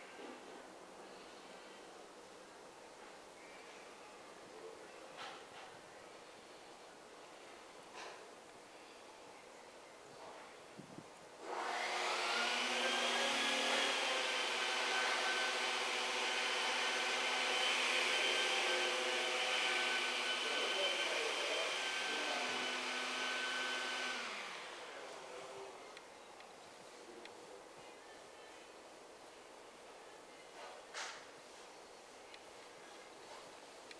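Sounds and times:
electric motor whining: 11.4s - 25.0s.

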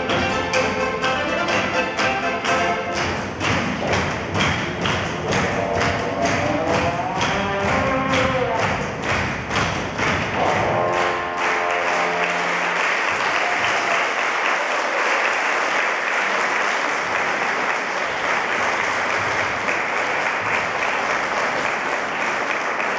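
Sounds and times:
dance music held note: 0.0s - 13.9s
audience applauding: 0.0s - 22.9s.

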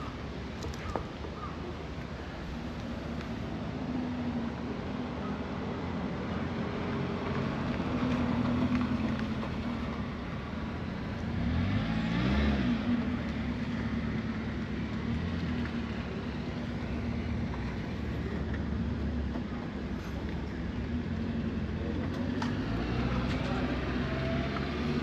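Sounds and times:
vehicle passing: 6.5s - 18.3s, 20.0s - 25.0s.

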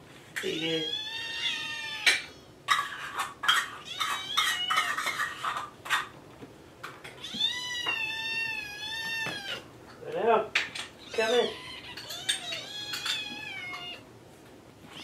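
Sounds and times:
kittens meowing: 0.4s - 5.6s, 7.1s - 9.7s, 11.0s - 14.1s
dishes clinking: 2.0s - 6.1s, 11.8s - 14.0s.

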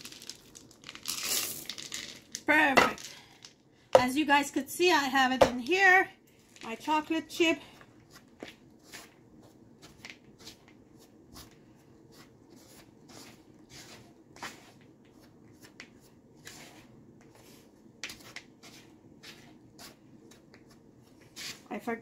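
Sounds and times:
spatula scraping plastic bowl: 12.1s - 20.0s.

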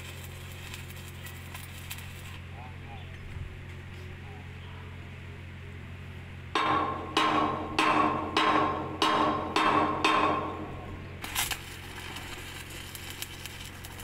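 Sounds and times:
welding arc crackle: 0.0s - 2.7s, 6.6s - 14.0s
hammer striking steel: 6.6s - 11.1s.

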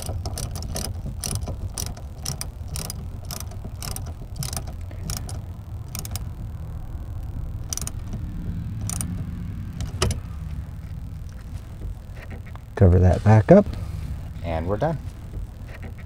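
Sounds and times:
ratchet clicking: 0.0s - 6.4s, 7.6s - 10.2s
low rumble: 0.0s - 16.0s.

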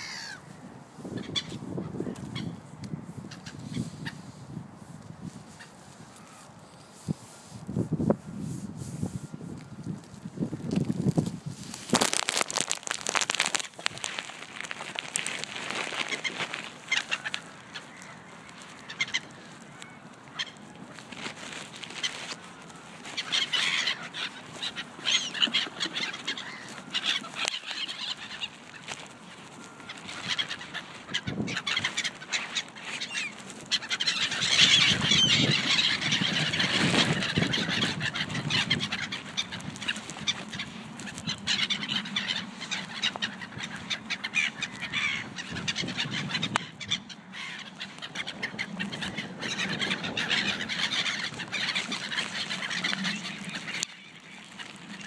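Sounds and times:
geese honking: 0.0s - 0.4s, 12.1s - 55.0s
waterbirds calling: 0.0s - 2.6s, 11.9s - 55.0s.

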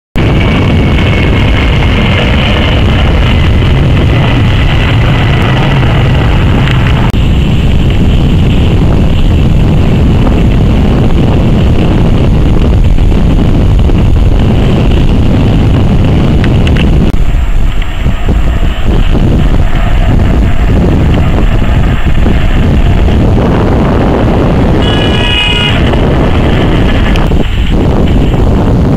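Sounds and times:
jet engines roaring: 0.2s - 28.9s.

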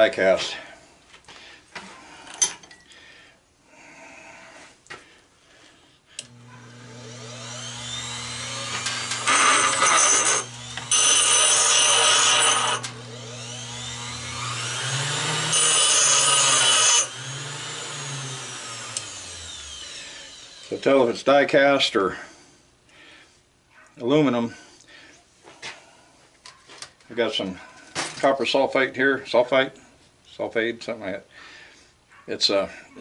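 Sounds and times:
electric grinder running: 6.2s - 20.8s
grinder cutting metal: 6.2s - 21.0s.

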